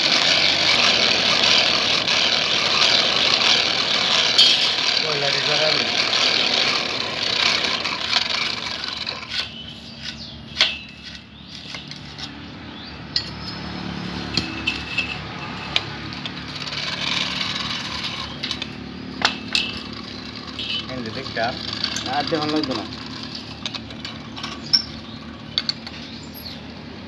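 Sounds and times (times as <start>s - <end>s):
hand-cranked blower whirring: 0.0s - 12.4s, 13.2s - 26.7s
metal clinks and taps: 13.1s - 13.6s.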